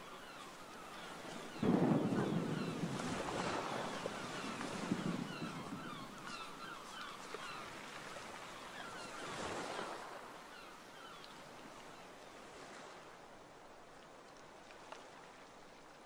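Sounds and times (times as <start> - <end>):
lake waves on shore: 0.0 - 16.0
strong wind: 1.1 - 8.4.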